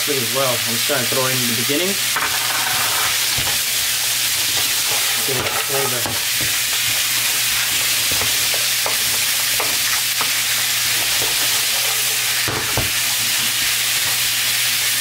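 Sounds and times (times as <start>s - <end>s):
meat sizzling in frying pan: 0.0s - 15.0s
wooden spatula scraping pan: 2.2s - 3.6s, 4.4s - 14.3s
spatula knocking against pan: 5.4s - 10.4s.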